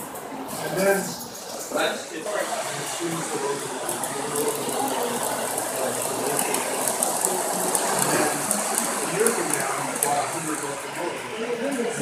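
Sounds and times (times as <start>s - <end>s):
model train whirring: 0.8s - 12.0s
rapid light clicks of wheels: 3.8s - 10.7s.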